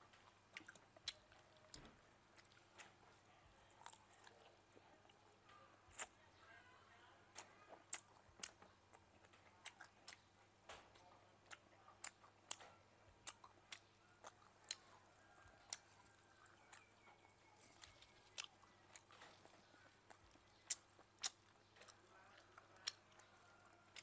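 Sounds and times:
chewing and crunching: 0.0 - 6.5, 7.2 - 24.0.

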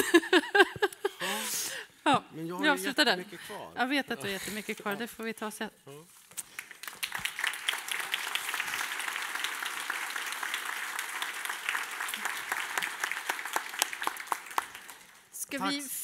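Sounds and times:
audience applauding: 6.5 - 15.3.

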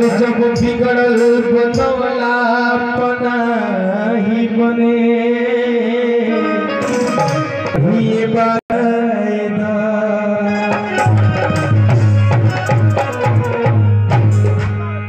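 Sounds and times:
man singing: 0.0 - 13.8
harmonium chords: 10.4 - 15.0
hand drum: 10.6 - 15.0.

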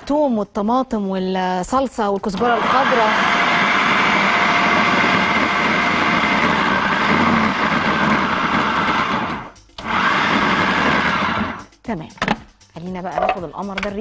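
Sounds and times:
food processor motor running: 2.3 - 11.7.

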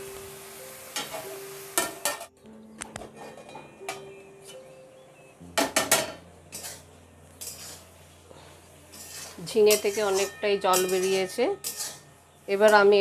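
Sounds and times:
spatula clattering against a pan: 1.8 - 4.2, 5.6 - 7.9, 8.9 - 13.0
metal lid clinking on a pan: 9.7 - 12.0.

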